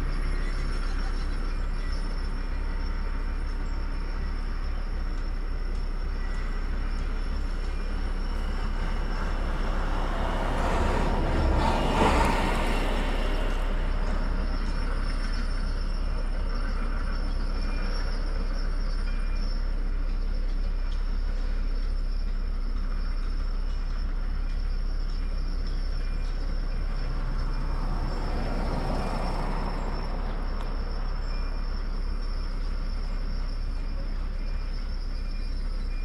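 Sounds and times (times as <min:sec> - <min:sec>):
low outdoor rumble: 0:00.0 - 0:36.0
vehicle passing by: 0:07.5 - 0:17.0, 0:26.4 - 0:31.8.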